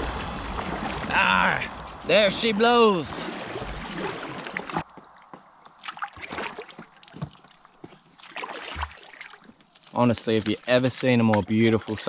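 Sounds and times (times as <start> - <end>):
water rushing and sloshing: 0.0 - 9.6
water drips: 0.0 - 11.5.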